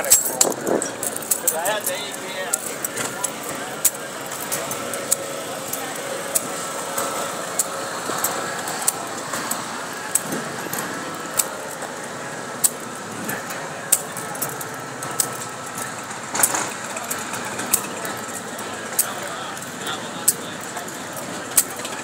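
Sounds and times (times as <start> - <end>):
busy street background: 0.0 - 22.0
sharp clicks with footsteps: 0.0 - 22.0.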